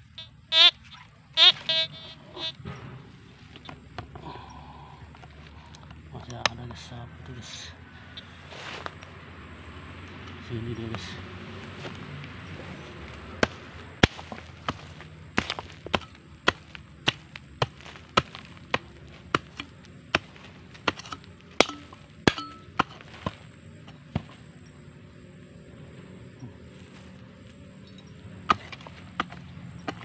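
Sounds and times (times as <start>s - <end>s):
hoe chopping into soil: 13.4s - 24.5s, 28.4s - 30.0s.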